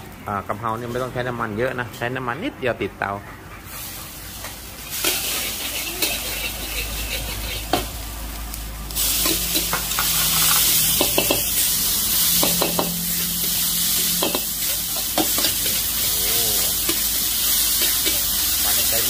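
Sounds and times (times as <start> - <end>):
stir-fry sizzling in a wok: 3.5 - 19.0.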